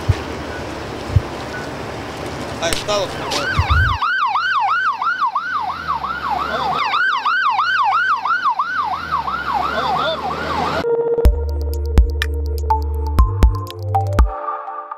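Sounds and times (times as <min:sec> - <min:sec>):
low rumble: 0:02.8 - 0:04.0
emergency siren yelping: 0:02.9 - 0:11.3.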